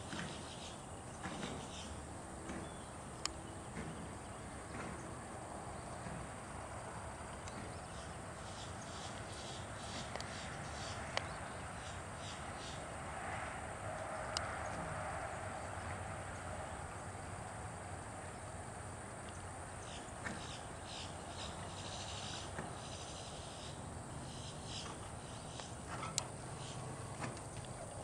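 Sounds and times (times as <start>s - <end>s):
insects chirping in trills: 0.0s - 28.0s
steady hiss: 17.0s - 27.5s.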